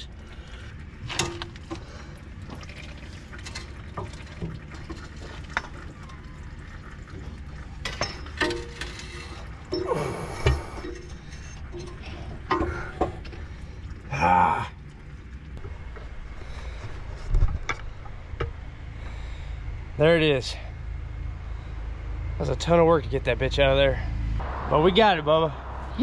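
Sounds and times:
metal clinks and knocks: 7.8s - 13.4s
rattling metal scrape: 7.8s - 13.8s.

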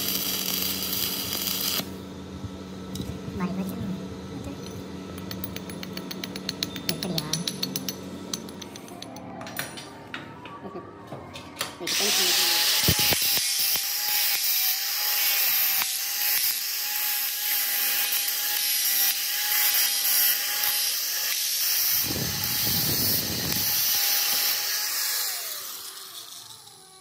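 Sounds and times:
electric power tool running: 0.0s - 2.0s, 11.9s - 27.0s.

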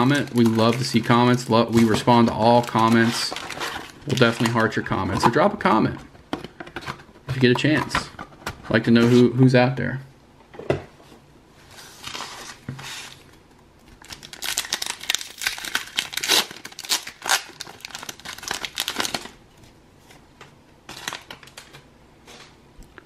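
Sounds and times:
foil wrapper tearing and crinkling: 14.0s - 19.4s.

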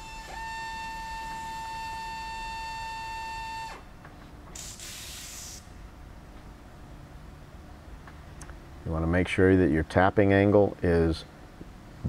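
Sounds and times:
air motor whining: 0.0s - 3.9s
brief air hiss: 4.5s - 5.8s.

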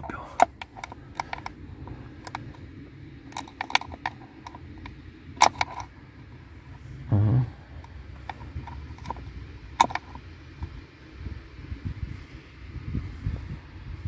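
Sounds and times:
test probes clicking on plastic: 0.0s - 6.0s, 7.8s - 10.8s.

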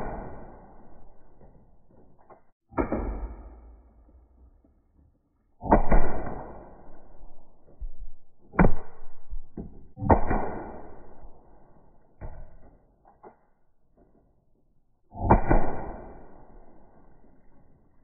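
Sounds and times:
air gun shots: 5.6s - 6.8s, 15.2s - 16.4s.

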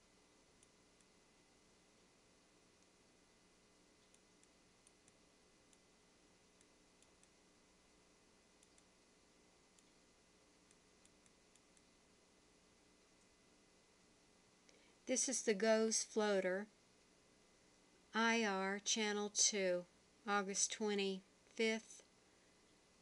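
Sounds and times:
faint steady hiss: 0.0s - 23.0s
faint high-pitched ticks: 0.5s - 1.2s, 4.0s - 7.4s, 8.5s - 9.0s, 9.7s - 10.0s, 10.6s - 12.0s.

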